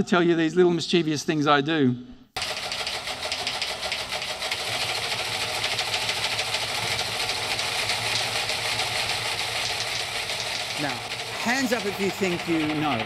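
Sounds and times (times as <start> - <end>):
teleprinter clattering over loudspeakers: 2.4 - 13.0.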